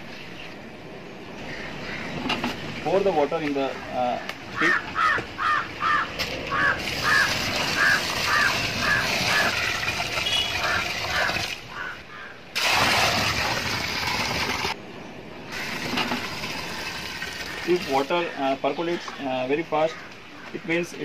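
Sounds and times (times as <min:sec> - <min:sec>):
bird calling: 0:03.6 - 0:12.5, 0:17.4 - 0:21.0
water pouring into soil pit: 0:06.8 - 0:11.6, 0:12.6 - 0:14.8, 0:15.5 - 0:18.1.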